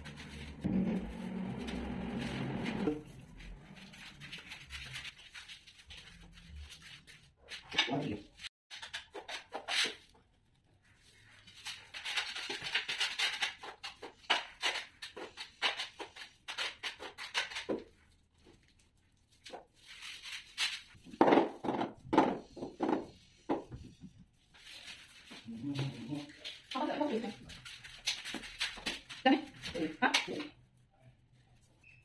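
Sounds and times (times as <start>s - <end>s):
rubbing and scraping on tiles: 0.0s - 32.0s.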